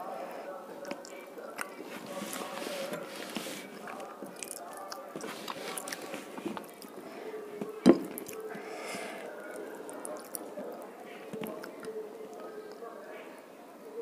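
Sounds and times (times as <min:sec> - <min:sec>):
fingers squelching food: 0:00.8 - 0:07.0, 0:09.3 - 0:12.8
person chewing: 0:00.8 - 0:08.6, 0:09.4 - 0:12.0.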